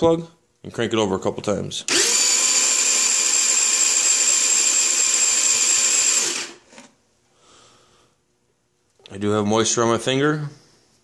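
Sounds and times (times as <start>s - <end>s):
scooter engine cranking whir: 1.9s - 6.6s.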